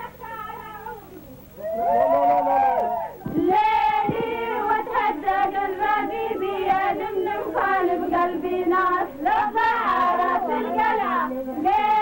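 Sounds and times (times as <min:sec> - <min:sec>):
women singing in unison: 0:03.2 - 0:12.0.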